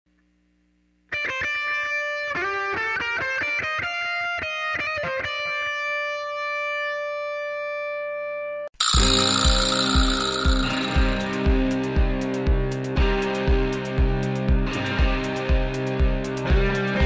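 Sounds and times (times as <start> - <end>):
plucked guitar jingle: 8.8 - 12.0.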